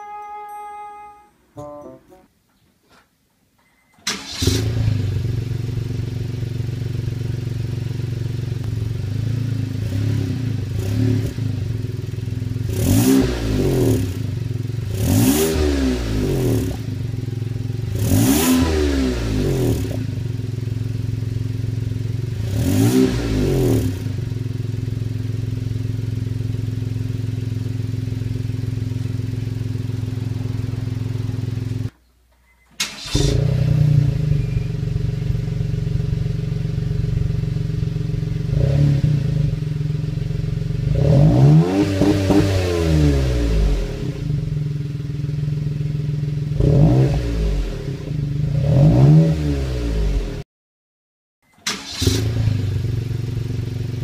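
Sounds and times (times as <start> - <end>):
car engine idling and revving: 4.2 - 32.0, 32.8 - 50.4, 51.6 - 54.0.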